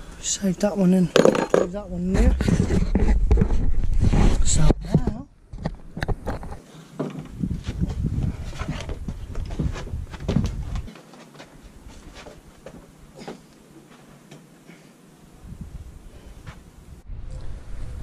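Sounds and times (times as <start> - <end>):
scooter body knocking and clattering: 1.2 - 1.8
low rumble: 1.7 - 4.9, 16.9 - 18.0.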